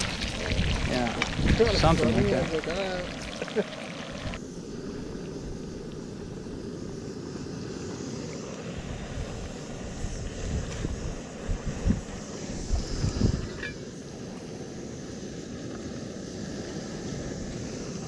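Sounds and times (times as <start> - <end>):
bacon sizzling: 0.0 - 4.4.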